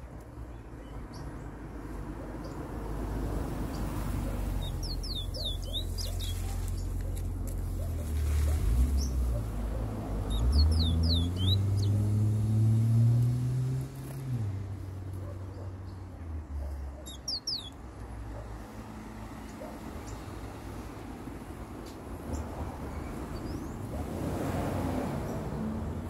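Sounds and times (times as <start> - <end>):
vehicle engine rumbling: 0.0 - 17.1
bird whistling song: 4.6 - 6.4, 10.3 - 12.0, 17.1 - 17.8.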